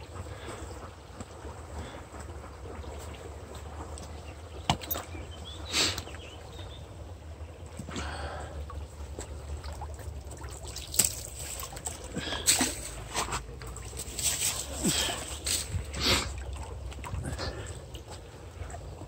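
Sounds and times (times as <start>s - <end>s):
brook water sloshing and trickling: 0.0s - 19.0s
short sharp splashes: 10.4s - 17.4s.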